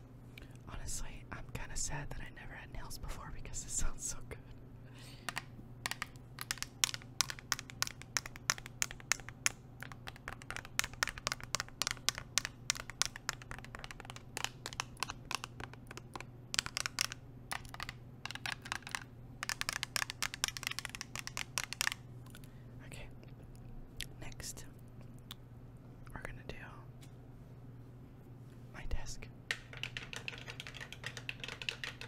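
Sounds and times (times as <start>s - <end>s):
nails tapping on water bottle: 5.3s - 22.0s, 29.5s - 32.0s.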